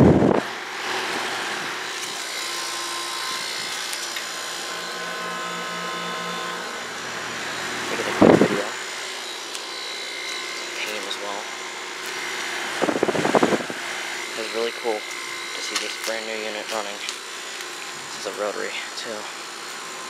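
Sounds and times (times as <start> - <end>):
compressor humming: 0.0 - 20.0
outdoor fan rushing: 0.0 - 20.0.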